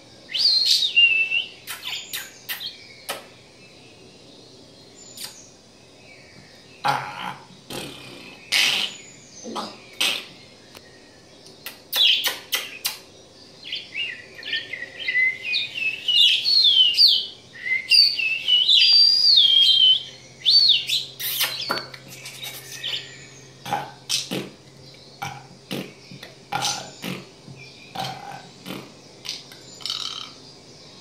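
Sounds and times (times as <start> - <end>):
bird clicks and short chirps: 1.6 - 3.3, 5.1 - 5.4, 11.4 - 13.1, 21.2 - 22.9.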